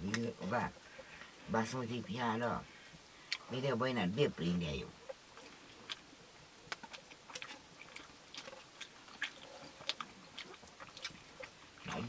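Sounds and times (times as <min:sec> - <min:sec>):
chewing: 0:05.0 - 0:12.0.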